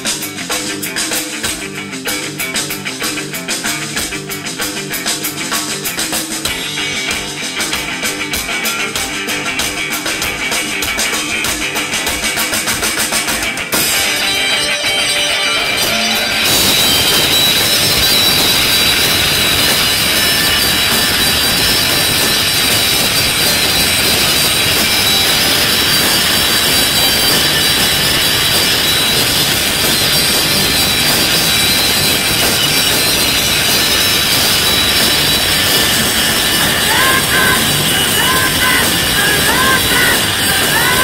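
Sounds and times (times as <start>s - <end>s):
rock band playing live: 0.0s - 41.0s
person singing: 36.8s - 41.0s.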